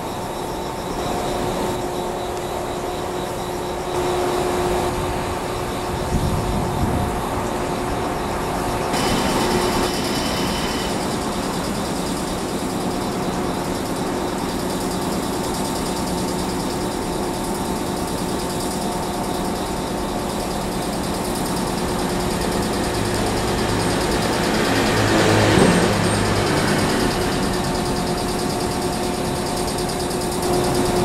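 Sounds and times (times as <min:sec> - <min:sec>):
locomotive engine drone: 0:00.0 - 0:31.0
hiss: 0:08.8 - 0:31.0.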